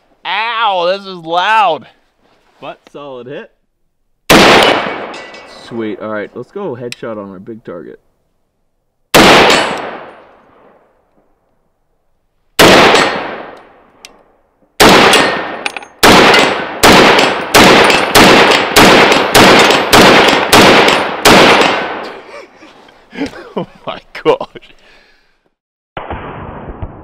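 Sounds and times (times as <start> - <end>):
loud rifle shots with echo: 4.3 - 5.2, 9.1 - 10.8, 12.6 - 13.8, 14.8 - 22.0, 26.0 - 27.0.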